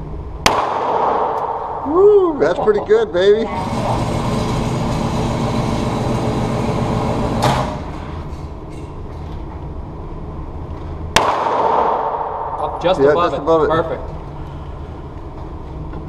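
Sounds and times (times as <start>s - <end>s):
pistol shot indoors: 0.4s - 1.8s, 11.1s - 12.8s.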